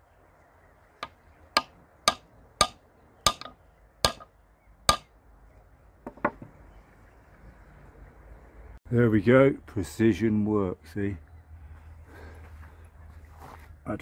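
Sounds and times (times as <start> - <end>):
hammer tapping steel rod: 1.0 - 4.3, 4.9 - 5.1.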